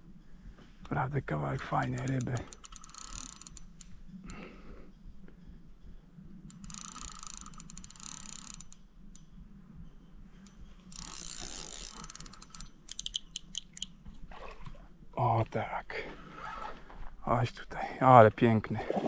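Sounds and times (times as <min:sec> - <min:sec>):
fishing reel ratcheting: 0:01.6 - 0:04.0, 0:06.5 - 0:08.8, 0:10.5 - 0:13.9.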